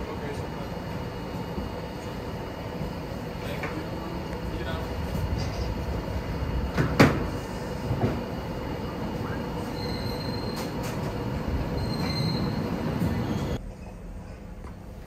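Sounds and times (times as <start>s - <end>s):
train rumble: 0.0s - 15.0s
train wheel squeals: 9.2s - 13.6s.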